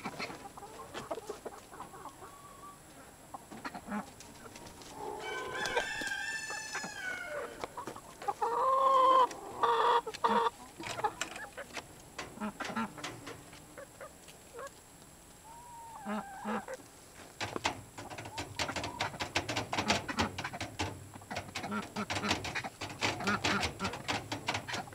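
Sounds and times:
hens clucking: 0.0 - 24.9
rooster crowing: 5.0 - 7.7
clicks and rustles: 10.8 - 15.4, 17.1 - 24.9.

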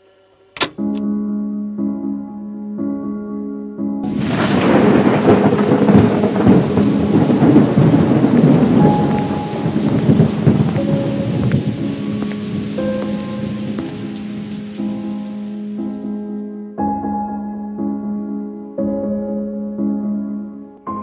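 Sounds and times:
soft piano music: 0.6 - 21.0
thunder rumbling: 4.1 - 15.8
heavy rain: 4.1 - 16.2.

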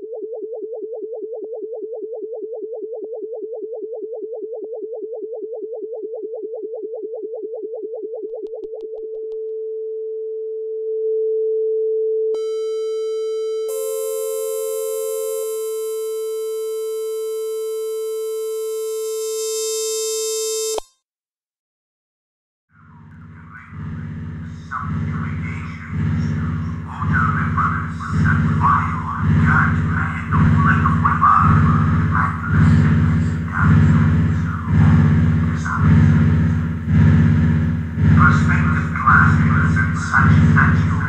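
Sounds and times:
pulsing synthesizer tone: 13.7 - 19.6, 22.8 - 41.0
buzzy synthesizer chord: 13.7 - 19.7, 23.0 - 41.0.

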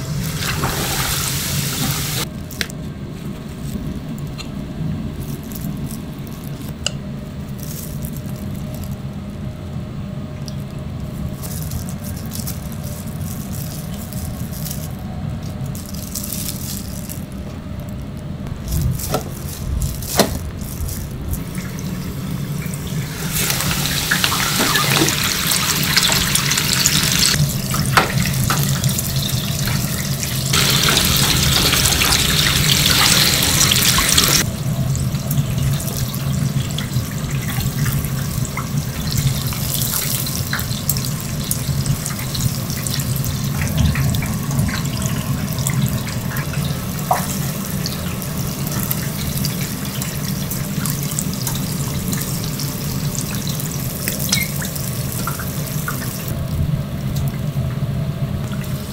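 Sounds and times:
prawns sizzling in hot oil: 0.0 - 2.3, 18.7 - 56.4
prawns rustling in breadcrumbs: 0.0 - 9.8, 10.4 - 34.5, 35.2 - 56.4
steady low hum: 0.0 - 58.9.

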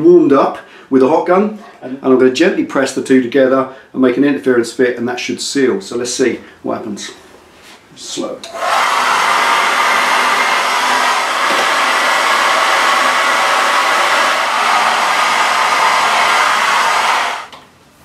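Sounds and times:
hair dryer blowing: 8.5 - 17.6.

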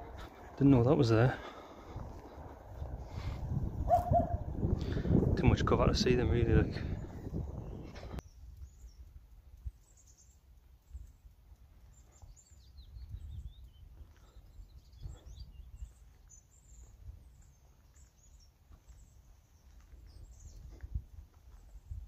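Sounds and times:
low rumble: 0.0 - 9.9
small birds chirping: 0.0 - 22.0.

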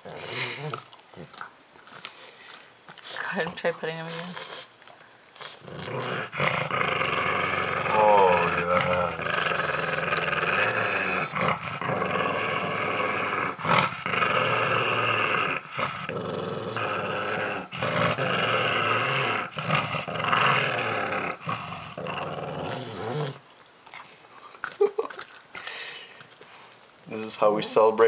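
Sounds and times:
dog growling: 0.0 - 1.5, 5.4 - 23.4.

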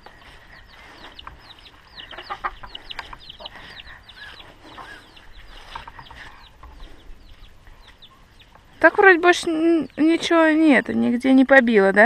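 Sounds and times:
lower poultry calls: 0.0 - 8.6
poultry peeping: 0.0 - 11.2.

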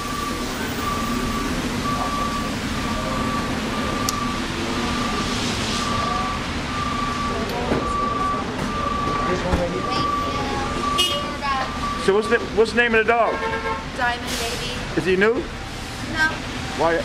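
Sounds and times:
electronic warning beeps: 0.0 - 12.6
traffic hum: 0.0 - 17.0.

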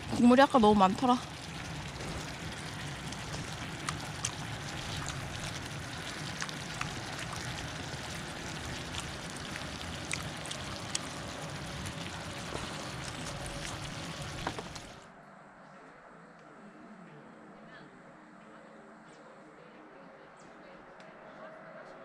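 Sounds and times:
stir-fry sizzling on a pan: 0.0 - 15.0.

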